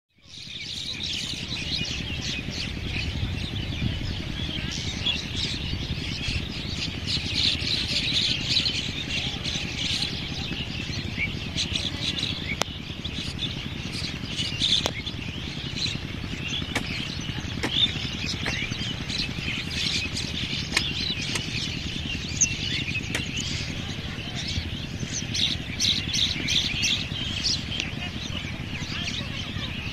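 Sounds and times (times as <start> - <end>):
low steady rumble: 0.2 - 29.9
small birds chirping: 0.2 - 29.9.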